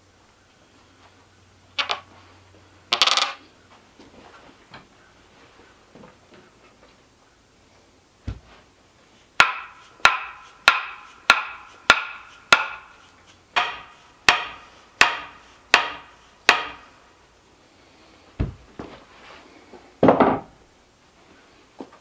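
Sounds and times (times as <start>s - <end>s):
dull thud: 8.2s - 8.6s, 18.4s - 19.0s
wooden tamper knocking: 9.4s - 13.0s, 13.6s - 16.9s.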